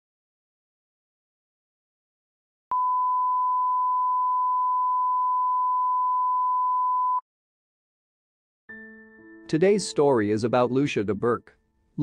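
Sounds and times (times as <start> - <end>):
electronic test-tone beep: 2.7 - 7.2.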